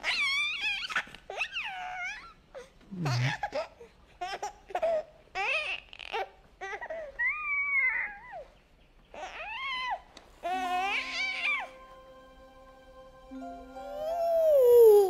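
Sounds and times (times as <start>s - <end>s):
baby crying and babbling: 14.2s - 15.0s.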